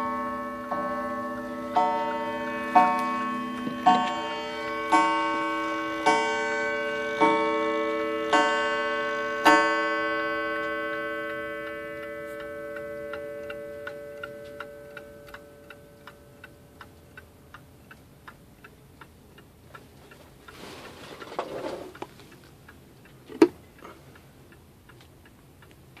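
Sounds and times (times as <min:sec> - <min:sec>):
clock gong striking: 0:00.0 - 0:16.5
clock ticking: 0:00.0 - 0:21.3, 0:21.9 - 0:26.0
rustle: 0:19.7 - 0:25.1.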